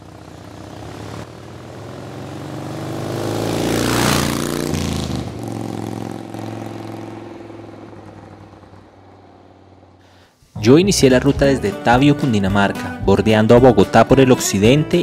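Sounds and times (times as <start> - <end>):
motor vehicle driving past: 0.0 - 10.6.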